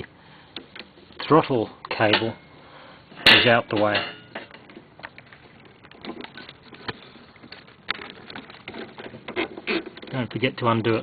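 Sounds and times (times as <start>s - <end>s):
hands rustling cables: 4.4s - 11.0s.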